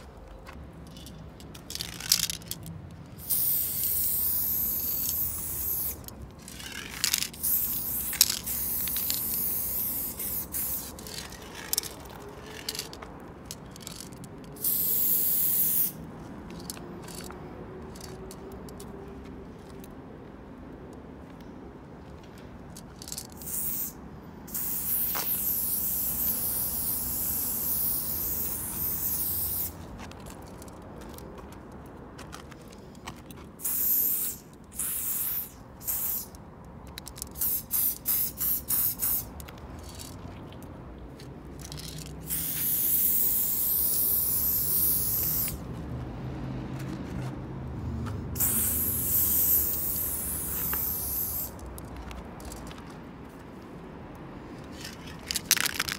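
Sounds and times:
spray paint can hissing: 0.9 - 13.0, 13.8 - 17.3, 23.0 - 29.9, 33.6 - 36.4, 37.0 - 40.2, 41.6 - 45.7, 48.4 - 52.7, 55.2 - 55.9.

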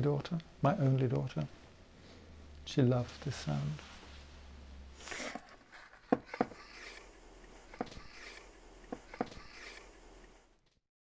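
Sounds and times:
objects rubbing: 3.2 - 10.6.

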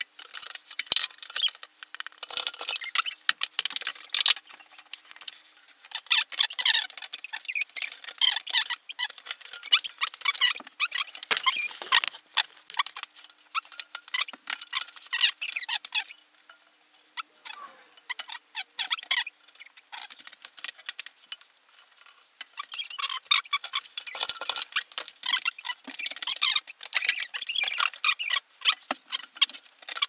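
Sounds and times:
wooden bars scratching and clicking: 0.0 - 16.2.

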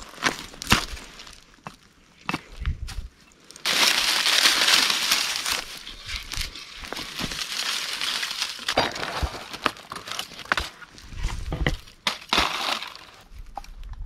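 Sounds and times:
dry leaves crunching: 3.4 - 13.5
twigs snapping: 3.5 - 10.8.

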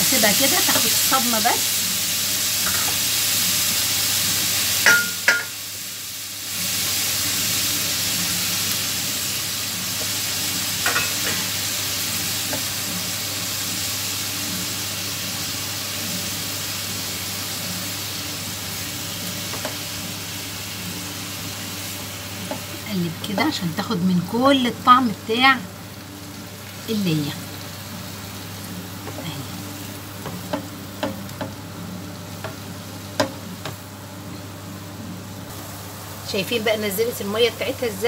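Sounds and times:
meat sizzling in frying pan: 0.0 - 38.0
spatula knocking against pan: 33.2 - 33.8.

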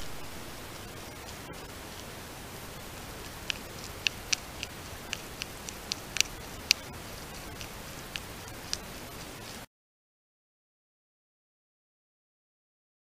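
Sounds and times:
porcupine chewing leaves: 0.0 - 9.6
microphone hiss: 0.0 - 9.7.

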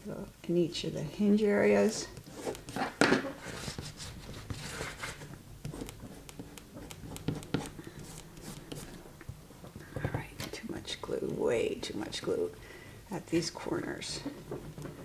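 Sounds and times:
paper and cardboard rustling: 2.0 - 5.9.

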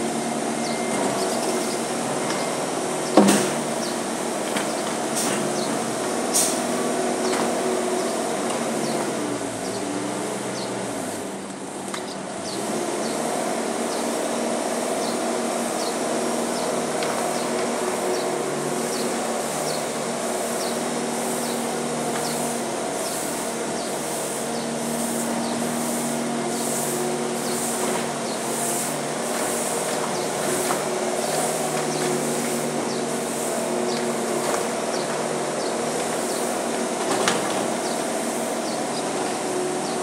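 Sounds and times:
diesel engine running: 0.0 - 40.0
faint high chirp: 0.6 - 3.2.

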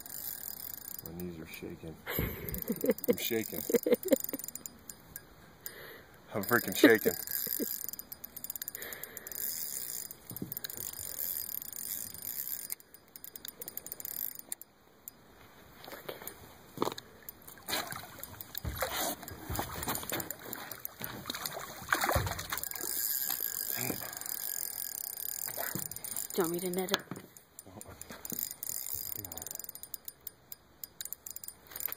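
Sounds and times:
fishing reel clicking: 0.0 - 1.6, 2.4 - 15.2, 18.2 - 21.6, 22.5 - 31.9
landing net entering water: 17.5 - 24.0
fish splashing in water: 20.5 - 22.9.

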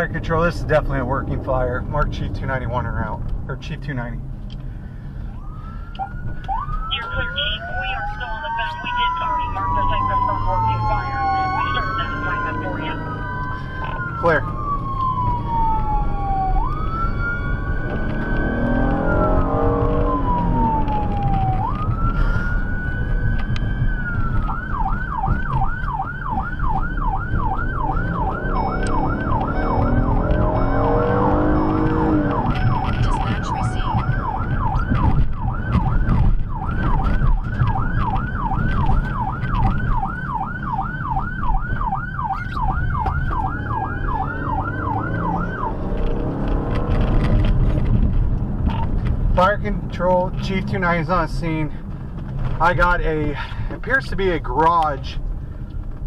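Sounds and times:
engine and road noise: 0.0 - 56.0
electronic siren wailing and yelping: 5.4 - 46.0.

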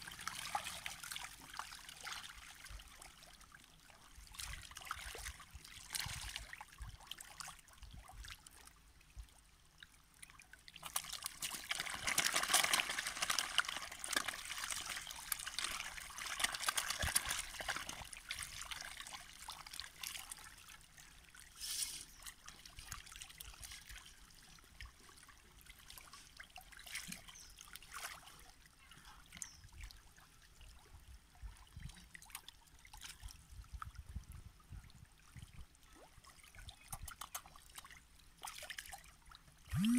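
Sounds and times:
fish splashing at water surface: 10.8 - 20.7.

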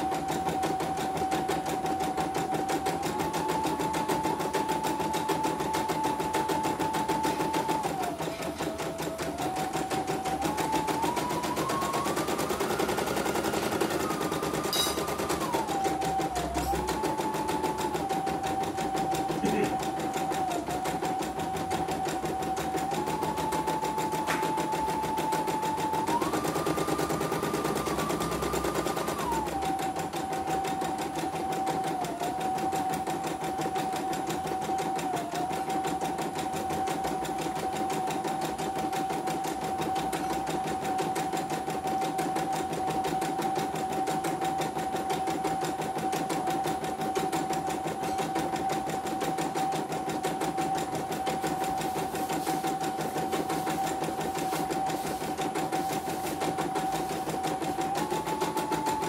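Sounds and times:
embroidery machine motor whine: 0.0 - 35.8.

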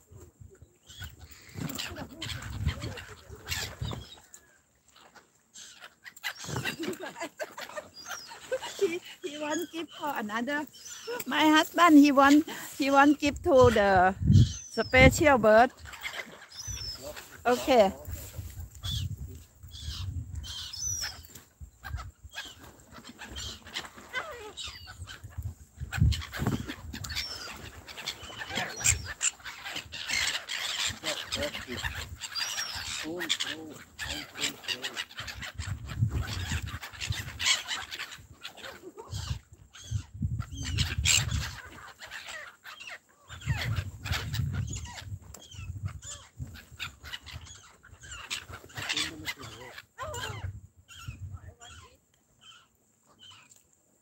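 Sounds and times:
wind rumbling on microphone: 0.0 - 4.2, 11.4 - 16.0, 16.6 - 22.4, 24.2 - 29.2, 35.2 - 37.5, 39.0 - 41.7, 43.3 - 48.2, 49.1 - 51.9
gulls calling: 0.6 - 53.6.

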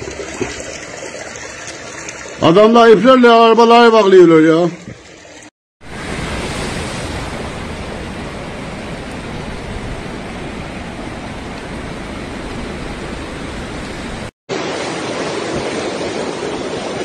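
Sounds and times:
river rushing roar: 5.8 - 17.0.

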